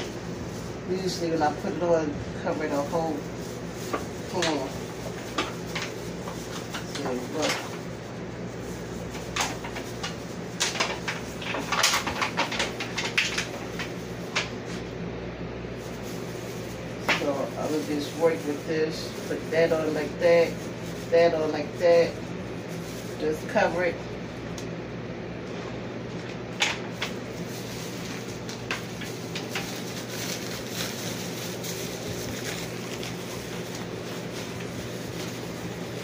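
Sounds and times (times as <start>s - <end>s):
foil pie tin crinkling: 0.0s - 14.9s, 15.6s - 24.6s, 25.4s - 36.0s
low room hum: 0.0s - 36.0s
pie crust snapping: 26.2s - 36.0s.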